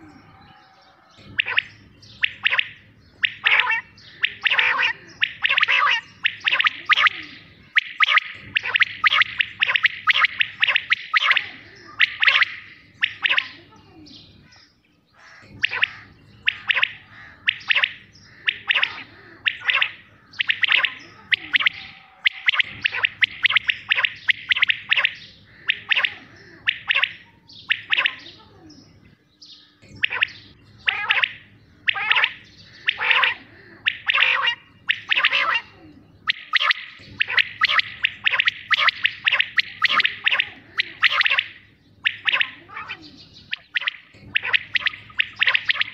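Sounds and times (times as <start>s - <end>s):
quail calling: 0.0s - 28.8s, 29.8s - 45.9s.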